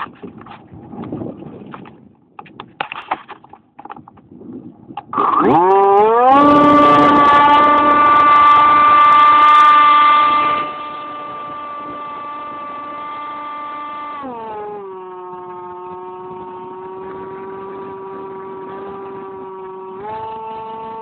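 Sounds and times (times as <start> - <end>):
model plane motor whine: 5.0 - 21.0.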